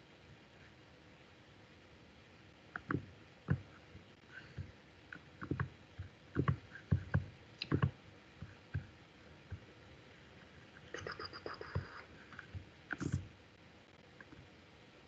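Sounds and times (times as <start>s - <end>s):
computer mouse clicking: 2.7s - 3.7s, 5.1s - 9.6s, 11.0s - 13.3s.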